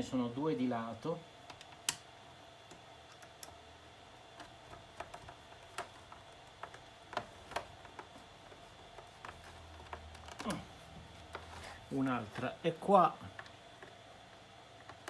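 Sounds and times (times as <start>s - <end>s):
screwdriver and screws tapping plastic: 4.3s - 10.4s.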